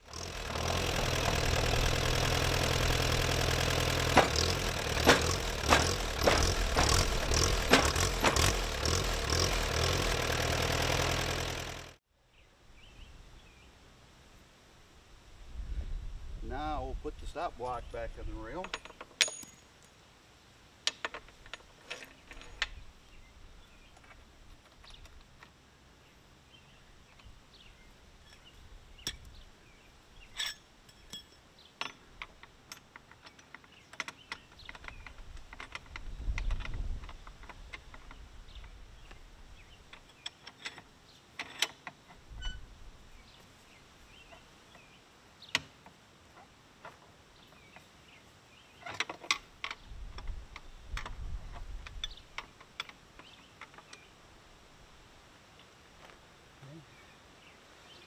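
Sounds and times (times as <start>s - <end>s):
metal clinks and taps: 18.5s - 19.9s, 30.4s - 35.9s.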